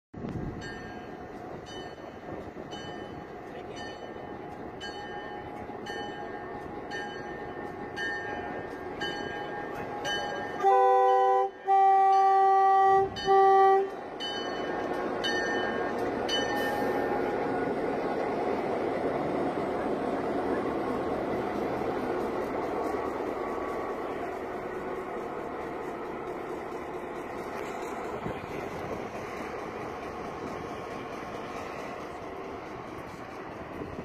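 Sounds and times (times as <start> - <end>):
locomotive engine and wheels rumbling: 0.2 - 34.0
locomotive bell ringing: 0.6 - 34.0
locomotive horn blasts: 10.6 - 14.0.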